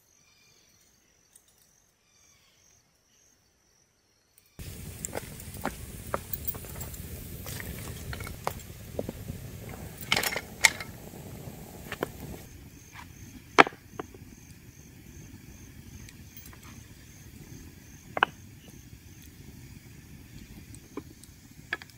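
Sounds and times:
campfire crackling and popping: 4.6 - 21.9.

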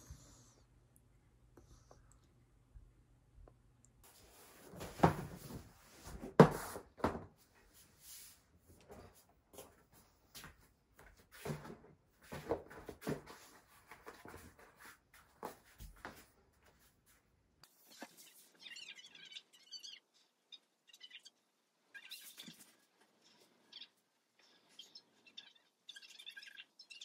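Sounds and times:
mat rustling: 4.1 - 17.3.

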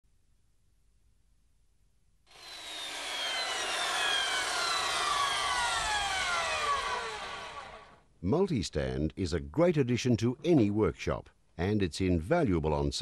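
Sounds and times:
tones gliding downward: 2.4 - 7.9.

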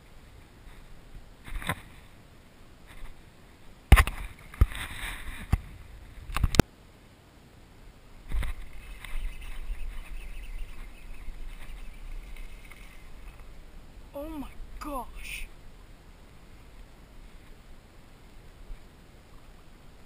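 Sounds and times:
low rustling: 7.9 - 20.0.

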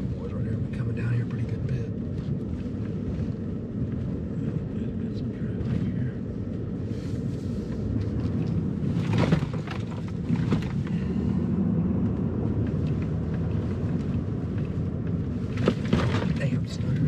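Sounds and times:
truck engine and tyres rumbling: 0.0 - 17.0
knocks and rattles: 15.4 - 17.0.

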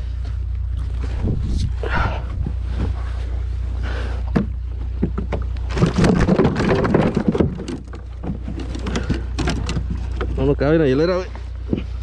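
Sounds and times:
steady low rumble: 0.0 - 12.0
knocks and scraping on kayak hull: 4.2 - 10.5.

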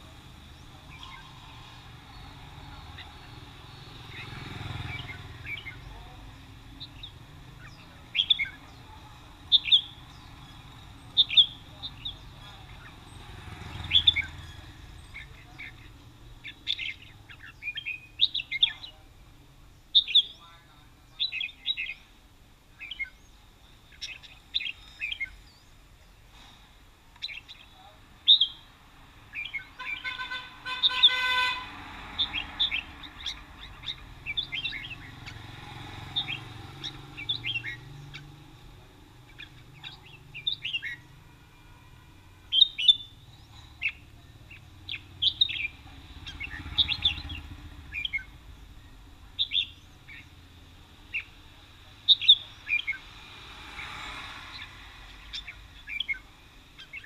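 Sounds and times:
birds chirping and whistling: 0.4 - 19.0, 19.9 - 20.4, 21.2 - 22.2, 22.8 - 26.6, 27.2 - 28.7, 29.3 - 41.6, 42.4 - 57.0
horn steady tone: 29.8 - 31.8.

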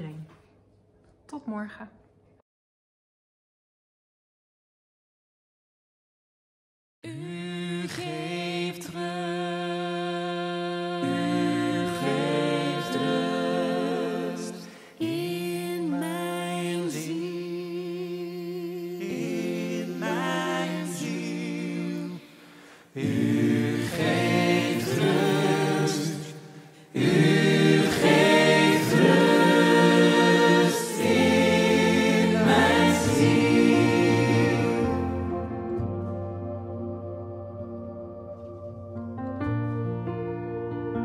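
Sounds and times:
choir singing: 7.1 - 37.1.

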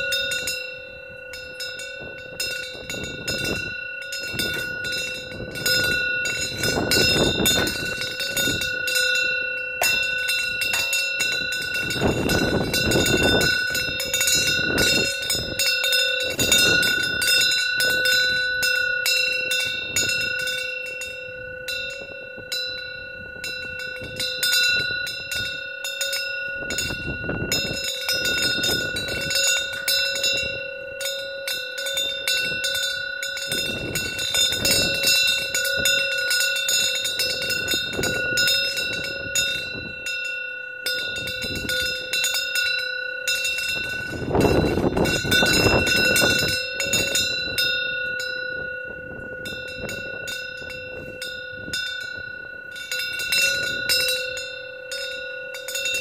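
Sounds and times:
wind bell ringing: 0.0 - 56.0.

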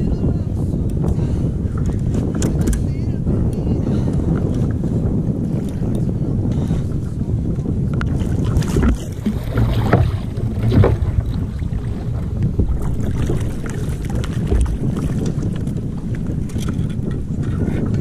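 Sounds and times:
wind buffeting the microphone: 0.0 - 18.0
water sloshing around a kayak: 4.5 - 18.0.

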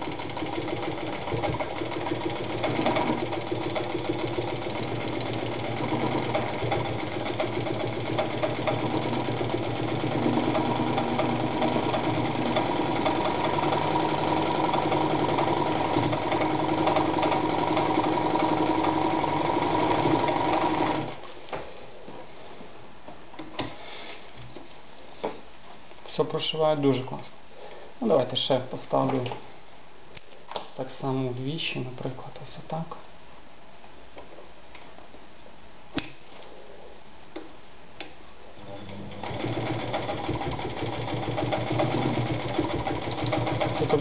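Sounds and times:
sewing machine running: 0.0 - 21.2, 38.6 - 44.0.

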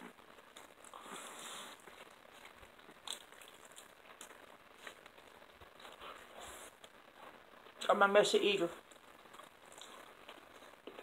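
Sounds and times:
small crunches and mouth clicks: 0.0 - 7.9, 8.8 - 11.0
biting and chewing meat: 0.1 - 7.8, 8.8 - 11.0.

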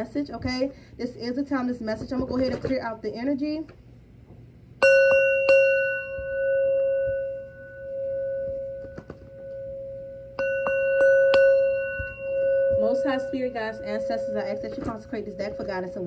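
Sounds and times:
singing bowl ringing: 4.8 - 16.0.

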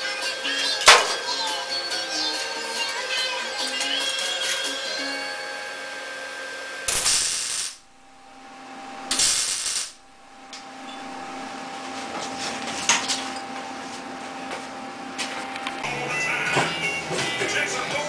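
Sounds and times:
crackling welding arc: 6.8 - 11.6.

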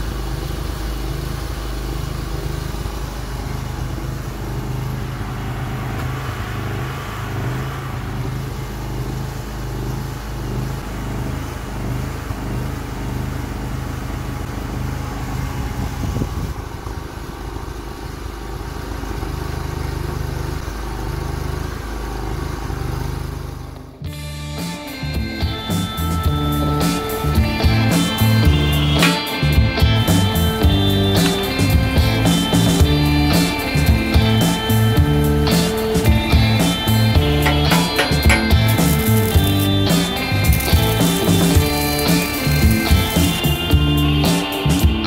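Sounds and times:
small engine running: 0.0 - 45.0
hydraulic pump: 25.5 - 45.0.

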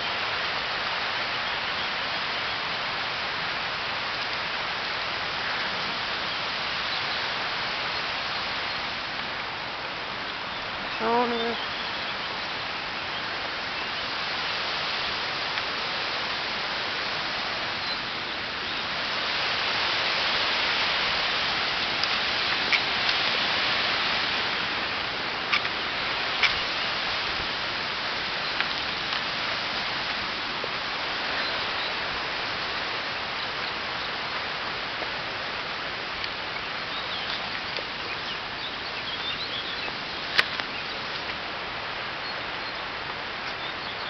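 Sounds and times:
rushing mountain stream: 0.0 - 44.0
small birds chirping: 9.9 - 14.1, 25.5 - 27.2, 31.2 - 32.0, 33.0 - 41.3, 42.1 - 44.0.

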